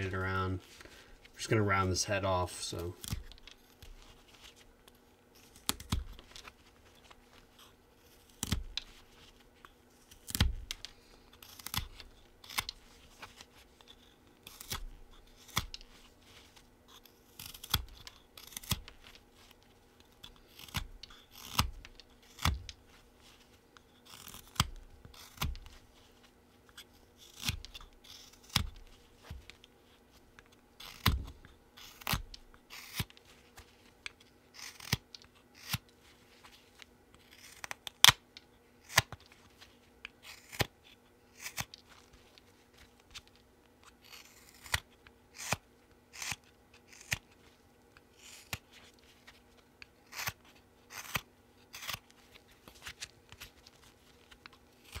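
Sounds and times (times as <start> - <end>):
knife slicing wood: 16.9 - 18.9, 20.2 - 22.8, 24.0 - 25.8, 26.8 - 29.4, 30.8 - 33.2, 41.4 - 41.8, 44.0 - 47.3.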